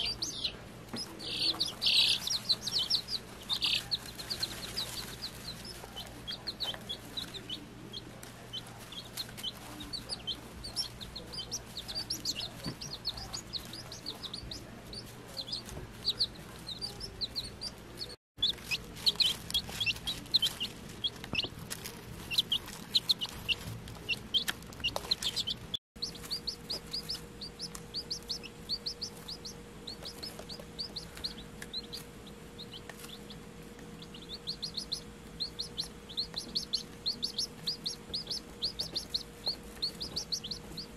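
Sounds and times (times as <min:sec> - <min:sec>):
chicks peeping: 0:00.0 - 0:40.9.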